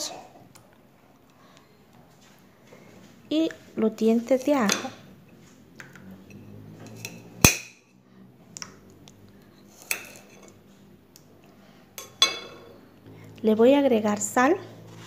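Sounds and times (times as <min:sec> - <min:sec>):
knife clinking on ceramic plate: 0:12.0 - 0:12.7.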